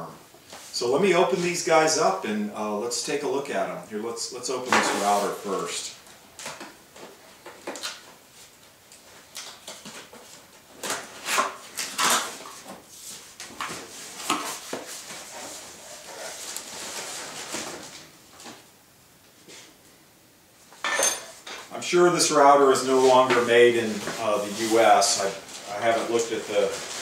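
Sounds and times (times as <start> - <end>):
cardboard rustling and scraping: 4.7 - 5.8, 9.6 - 18.6, 22.6 - 27.0.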